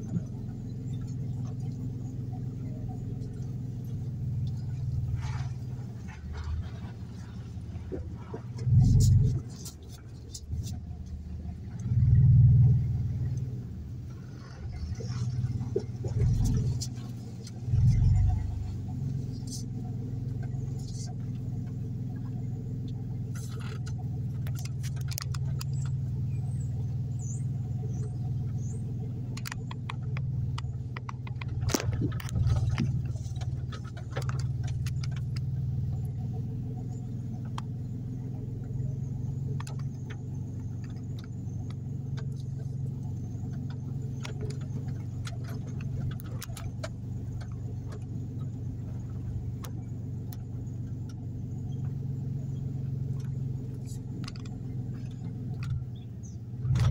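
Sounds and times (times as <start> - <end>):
car engine and road hum: 0.0 - 56.9
light clicks and rattles: 13.2 - 56.9.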